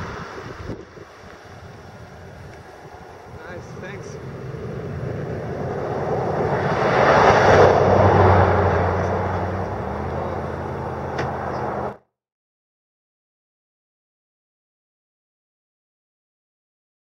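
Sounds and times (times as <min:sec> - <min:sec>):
car passing on highway: 0:00.0 - 0:12.0
low engine hum: 0:00.0 - 0:12.0.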